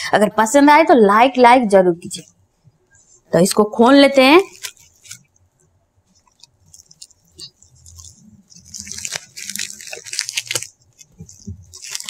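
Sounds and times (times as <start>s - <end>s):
packaging crinkling and rustling: 4.4s - 5.4s, 6.1s - 12.0s.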